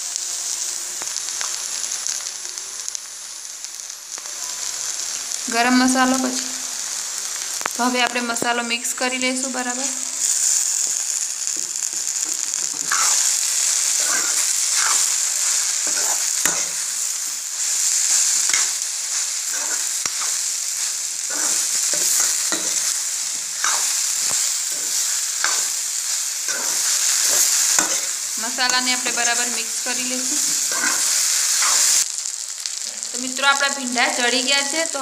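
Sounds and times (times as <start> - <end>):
okra sizzling in oil: 0.0 - 35.0
metal spoon scraping pan: 12.2 - 13.3, 13.9 - 16.9, 18.0 - 18.8, 19.5 - 23.0, 23.6 - 25.8, 26.5 - 29.5, 30.3 - 32.0.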